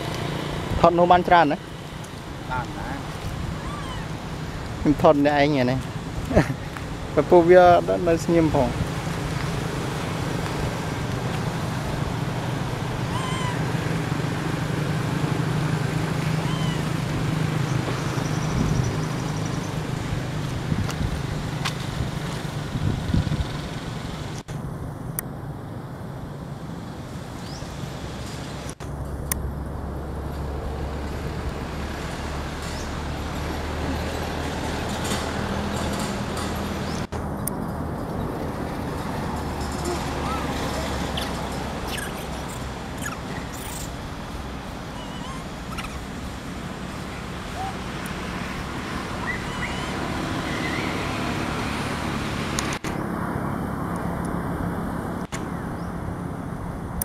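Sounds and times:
vehicle engine hum: 0.0s - 57.0s
baby monkey coo call: 3.5s - 4.2s, 13.1s - 13.8s, 16.4s - 17.0s, 39.7s - 44.0s, 44.9s - 46.1s, 47.0s - 47.9s, 49.1s - 51.0s.

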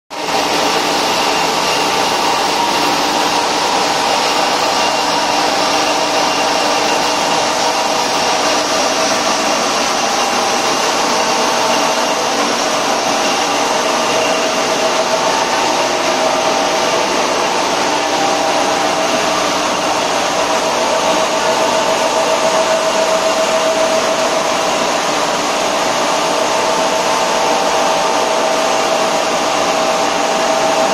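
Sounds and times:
machine whining tones: 0.2s - 30.9s
machinery whirring: 0.2s - 30.9s.

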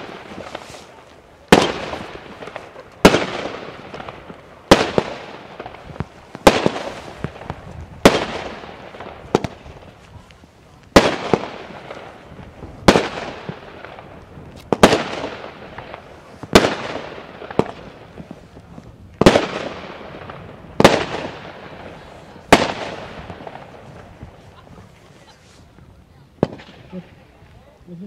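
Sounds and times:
small fireworks pops: 0.0s - 28.0s
aerial fireworks bangs: 1.5s - 9.8s, 11.0s - 14.1s, 14.7s - 18.4s, 19.2s - 24.4s.

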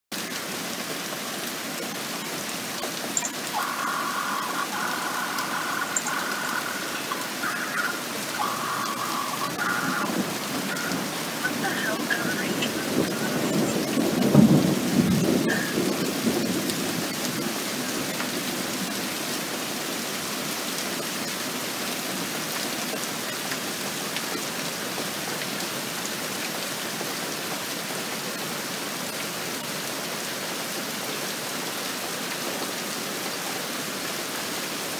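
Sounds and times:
steady rain: 0.1s - 34.9s
thunder rumble: 3.3s - 17.4s.

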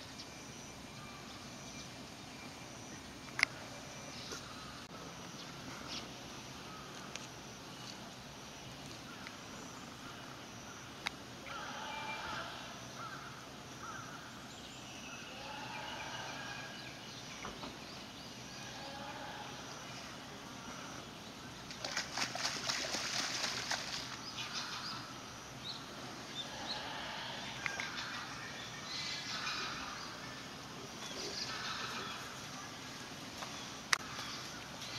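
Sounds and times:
water splashing and sloshing: 21.6s - 24.8s.

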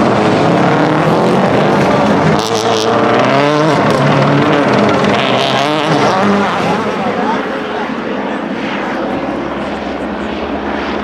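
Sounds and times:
engine crackles: 0.0s - 11.0s
rally car engine revving: 0.0s - 11.0s.

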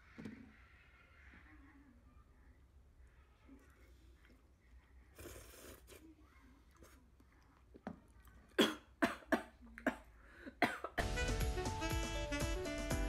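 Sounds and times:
woman coughing: 8.6s - 11.0s.

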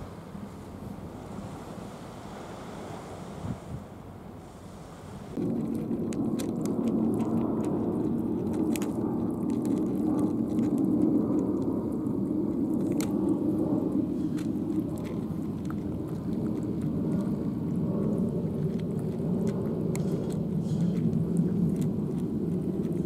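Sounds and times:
steady low rumble: 0.0s - 23.0s
cats chewing crunchy food: 5.3s - 23.0s.

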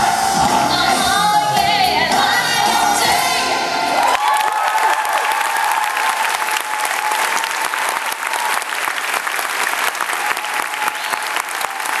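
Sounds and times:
audience clapping: 4.0s - 12.0s.

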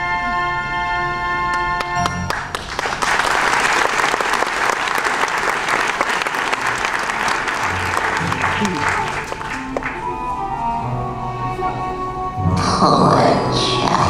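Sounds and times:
audience applause: 2.0s - 10.2s
orchestral accompaniment: 6.1s - 14.0s.

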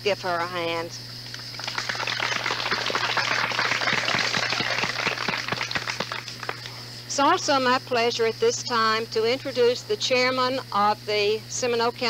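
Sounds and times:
steady low hum: 0.0s - 12.0s
audience applauding: 1.4s - 6.7s.

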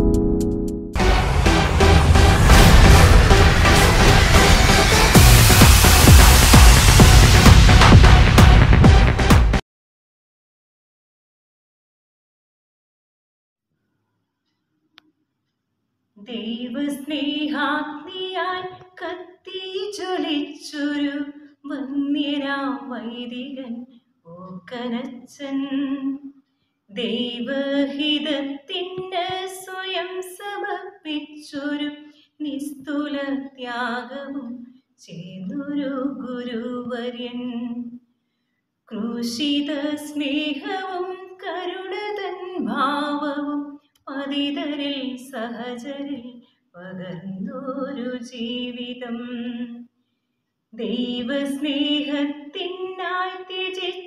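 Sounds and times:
woman reciting poem in song: 16.2s - 26.3s, 26.9s - 38.0s, 38.9s - 49.8s, 50.8s - 54.0s.

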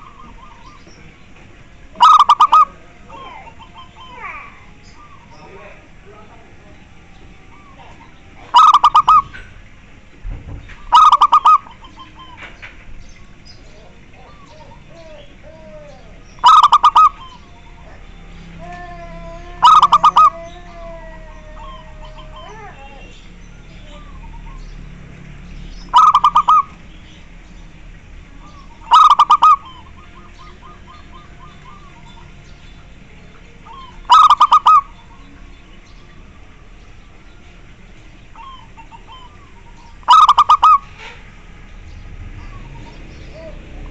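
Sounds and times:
dove cooing: 0.0s - 24.8s, 25.9s - 27.4s, 28.3s - 32.5s, 33.6s - 35.3s, 38.2s - 43.9s.

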